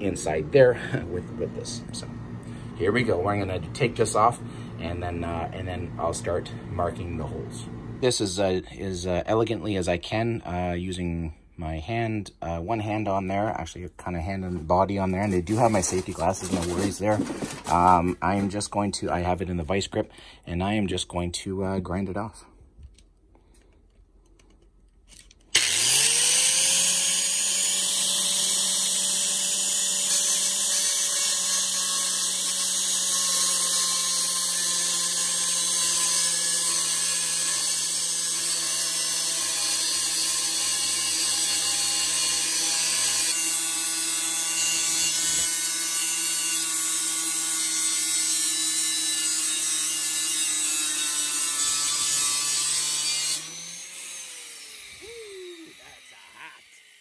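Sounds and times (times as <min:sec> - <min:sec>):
electric grinder whining: 0:25.5 - 0:57.0.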